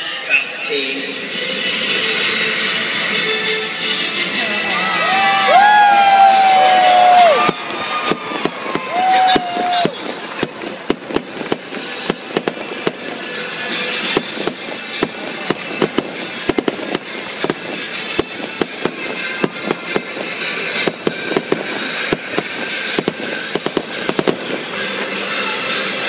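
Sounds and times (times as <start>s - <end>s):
fireworks popping and banging: 6.3s - 26.0s.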